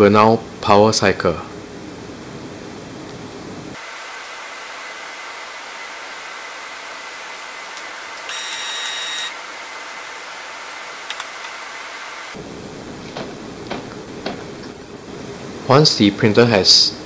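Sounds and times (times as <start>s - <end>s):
printer motor whine: 7.7s - 10.3s.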